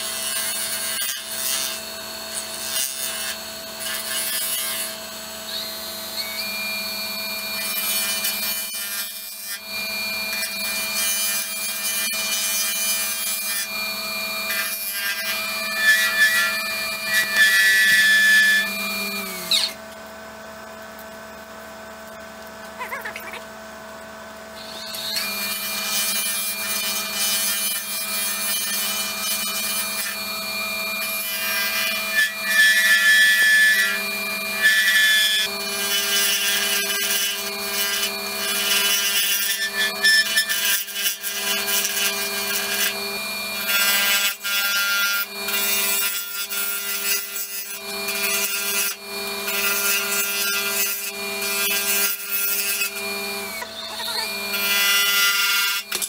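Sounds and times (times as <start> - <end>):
lathe tool scraping resin: 0.0 - 23.5, 24.6 - 56.0
lathe motor whine: 4.9 - 56.0.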